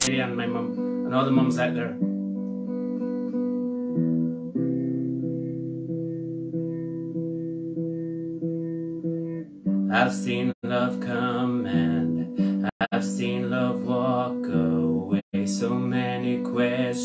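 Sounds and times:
acoustic guitar ballad: 0.0 - 17.0.

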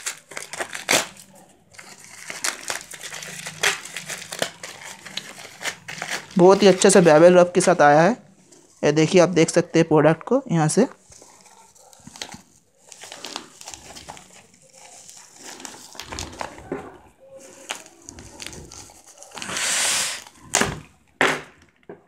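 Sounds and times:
bubble wrap tearing: 0.0 - 7.5, 11.0 - 16.7, 17.3 - 20.8
bubble wrap crinkling: 0.0 - 8.9, 10.9 - 21.1.

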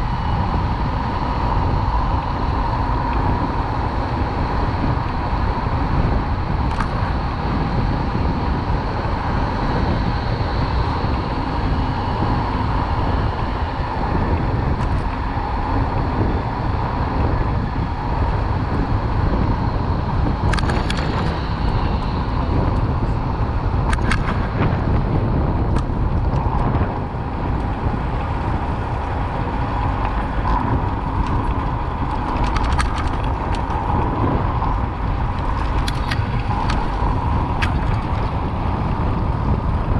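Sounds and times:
passing traffic: 0.0 - 39.9
tyres rumbling on road: 0.0 - 39.9
bicycle clicks and rattles: 5.7 - 7.6, 14.2 - 16.4, 20.2 - 39.9.

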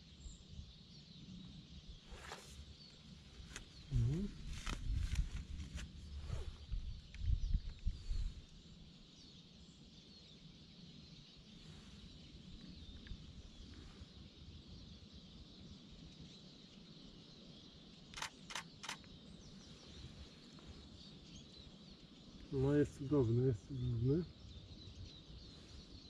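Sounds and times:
small birds singing: 0.0 - 26.0
camera shutter firing: 18.2 - 19.0.

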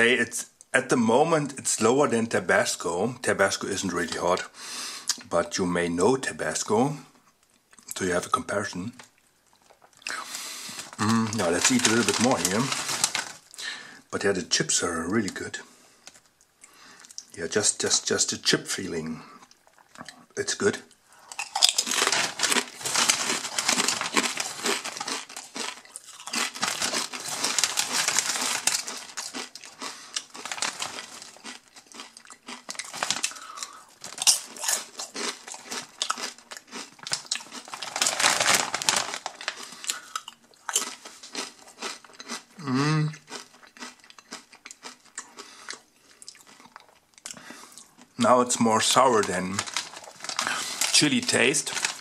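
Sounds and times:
chip bag crinkling and rustling: 8.9 - 13.7, 21.3 - 42.4, 47.8 - 52.0.

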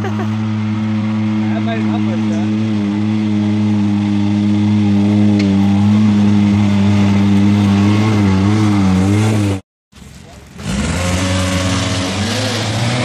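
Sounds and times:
off-road vehicle engine under load: 0.0 - 13.0.

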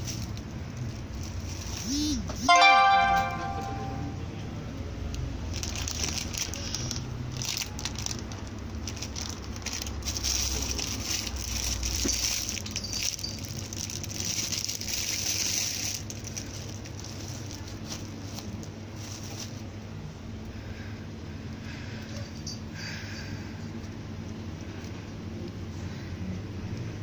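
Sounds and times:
plastic bags crinkling: 0.0 - 2.0, 5.4 - 19.8.

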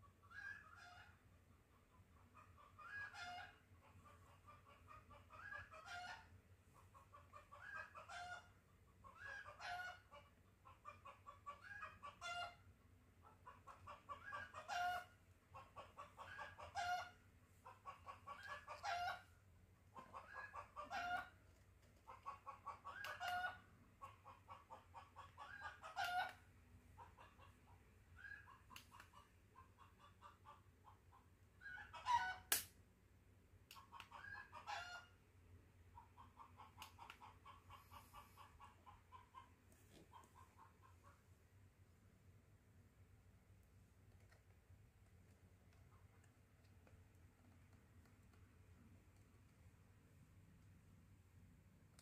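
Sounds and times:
chicken clucking: 0.0 - 32.5, 33.7 - 35.2, 35.8 - 41.4.

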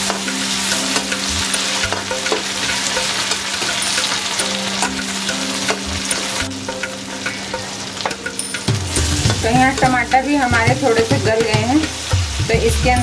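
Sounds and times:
spatula clicking against pan: 0.0 - 8.7
food sizzling in hot oil: 0.0 - 13.0.

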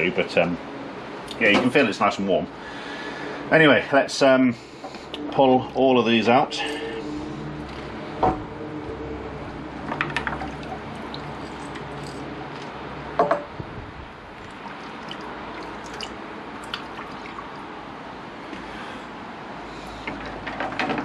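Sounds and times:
water dripping and sloshing: 9.8 - 13.2, 14.2 - 18.9.

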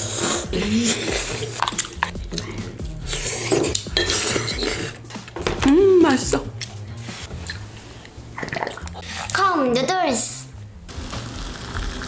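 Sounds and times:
metal utensils clinking and scraping: 0.5 - 5.3.

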